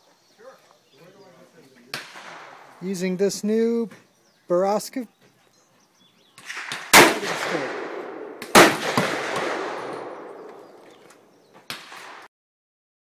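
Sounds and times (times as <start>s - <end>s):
gunshots echoing: 1.9s - 2.8s, 6.4s - 12.3s.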